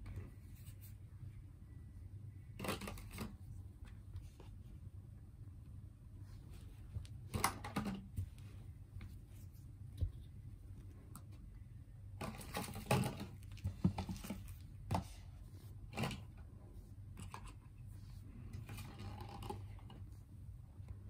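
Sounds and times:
low steady hum: 0.0s - 21.0s
plastic items clicking and tapping: 2.6s - 3.4s, 7.3s - 8.2s, 12.2s - 15.1s.

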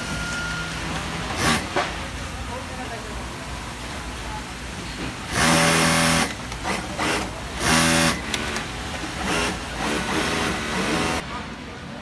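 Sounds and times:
sewing machine running: 5.3s - 11.2s.

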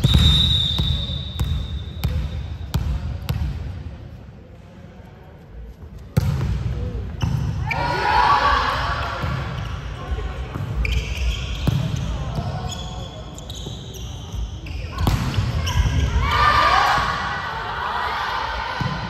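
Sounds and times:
high whistle: 0.0s - 2.1s.

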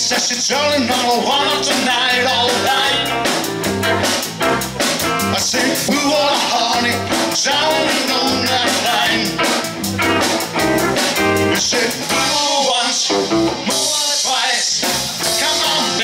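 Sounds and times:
man singing: 0.0s - 3.3s, 5.2s - 9.6s, 11.5s - 16.0s
drum kit beat: 0.0s - 16.0s
electric guitars: 0.0s - 16.0s.

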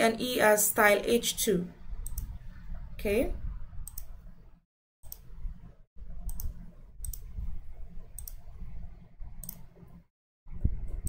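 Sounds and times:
computer mouse clicking: 2.0s - 2.5s, 3.8s - 4.3s, 5.0s - 5.4s, 6.2s - 7.5s, 8.1s - 8.6s, 9.4s - 10.0s.

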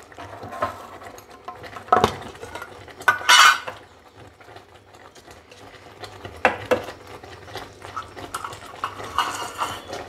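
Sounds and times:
metal spoon clattering on container: 8.4s - 10.0s.

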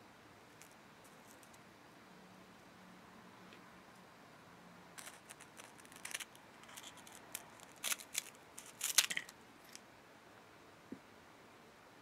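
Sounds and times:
scissors snipping snack pieces: 5.0s - 9.8s.

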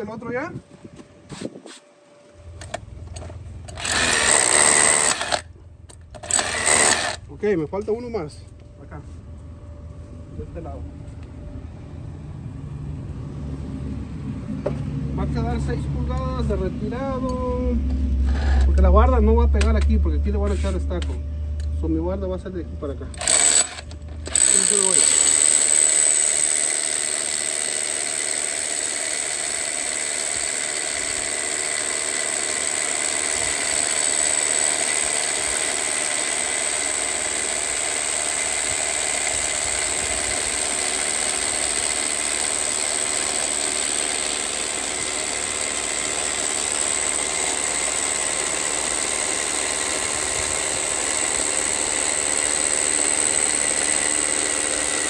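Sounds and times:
hammer drill boring into concrete: 3.7s - 5.5s, 6.2s - 7.2s, 23.2s - 55.0s.

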